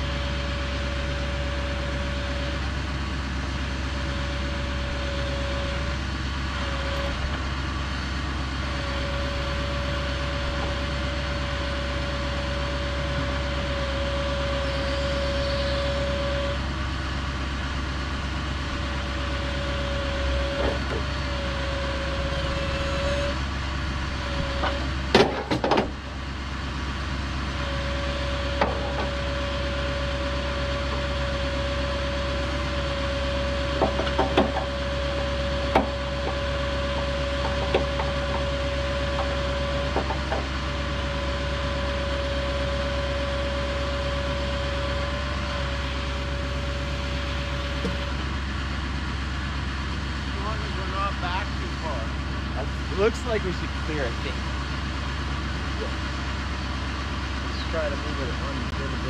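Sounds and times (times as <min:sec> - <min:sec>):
band sawmill whining: 0:00.0 - 0:59.0
sharp wooden knocks: 0:33.8 - 0:34.7.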